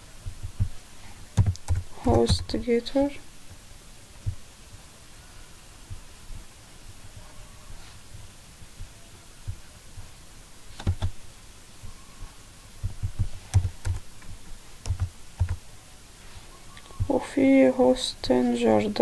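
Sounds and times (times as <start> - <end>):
keyboard keystrokes: 1.4 - 2.4, 10.8 - 11.2, 13.1 - 15.6.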